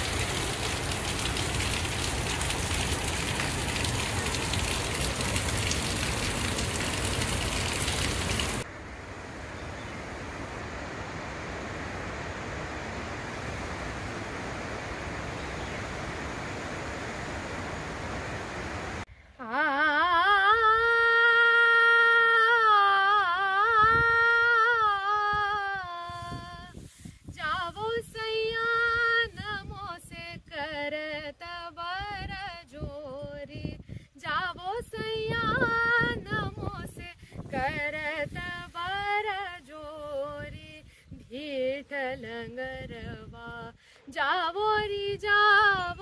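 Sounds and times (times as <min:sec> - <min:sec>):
rushing waterfall: 0:00.0 - 0:19.1
woman singing unaccompanied: 0:19.4 - 0:46.0.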